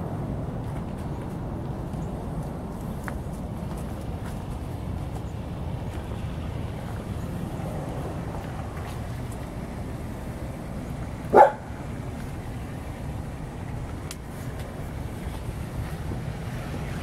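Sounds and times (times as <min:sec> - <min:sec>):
steady low rumble: 0:00.0 - 0:17.0
dog barking: 0:11.3 - 0:11.7.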